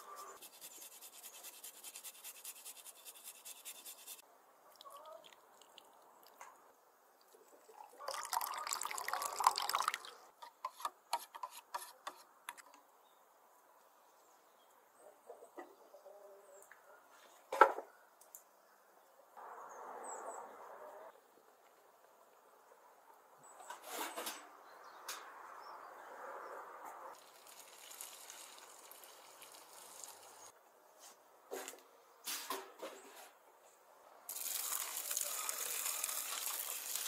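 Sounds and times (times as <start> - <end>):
liquid pouring: 7.6 - 10.2, 27.2 - 30.5, 34.3 - 37.0
lemon juice dripping: 27.2 - 30.3.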